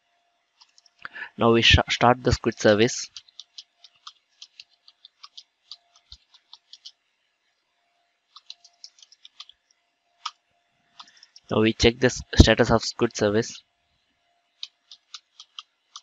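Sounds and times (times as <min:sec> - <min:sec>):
computer keyboard typing: 0:00.6 - 0:01.0, 0:02.3 - 0:07.0, 0:08.3 - 0:09.6, 0:11.0 - 0:11.6, 0:14.6 - 0:16.0.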